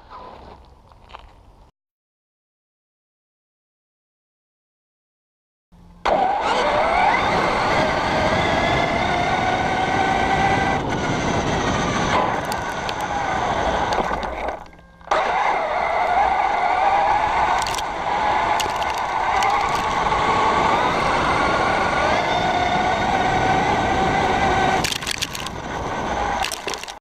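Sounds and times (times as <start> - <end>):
tyres crunching on gravel: 0.0 - 1.6, 12.1 - 14.8, 17.2 - 20.4, 24.8 - 27.0
sharp stone ticks: 12.3 - 13.2, 17.5 - 20.1, 24.8 - 25.6, 26.3 - 27.0.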